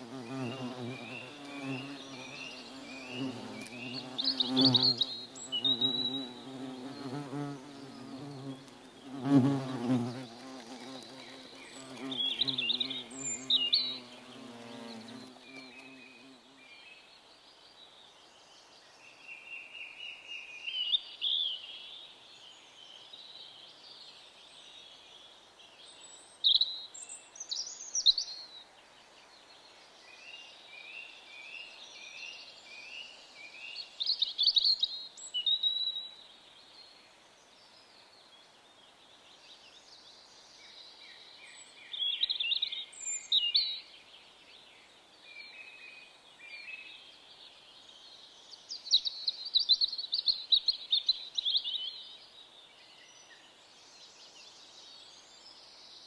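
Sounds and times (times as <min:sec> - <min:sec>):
flying insect buzzing: 0:00.0 - 0:16.6
songbirds singing and chirping: 0:00.0 - 0:56.0.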